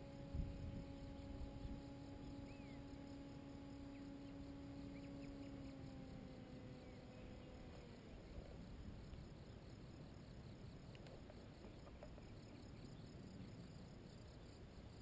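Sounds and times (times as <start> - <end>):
faint bird chirps: 0.0 - 9.8, 10.8 - 15.0
distant paramotor engine droning: 0.0 - 15.0
wind gust on microphone: 0.3 - 1.9.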